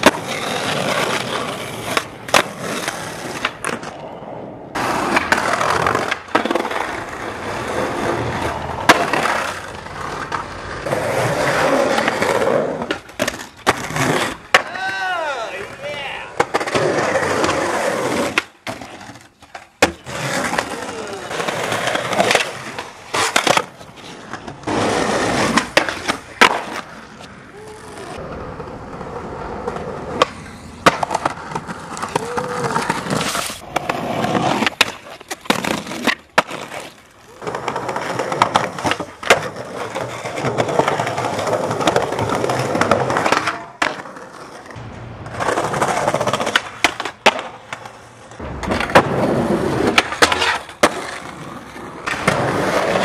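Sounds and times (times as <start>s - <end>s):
skateboard snapping and landing: 0.0s - 4.0s, 4.8s - 14.9s, 16.4s - 27.4s, 29.6s - 53.0s
skateboard wheels rolling on concrete: 0.0s - 53.0s.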